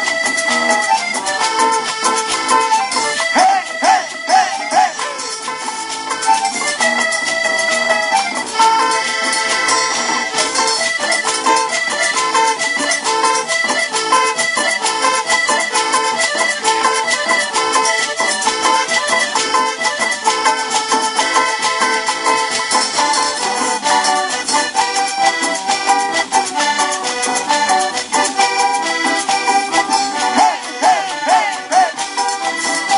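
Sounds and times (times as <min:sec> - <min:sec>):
steady percussion beat: 0:00.0 - 0:07.0, 0:19.2 - 0:32.9
accordion-like melody: 0:00.0 - 0:32.9.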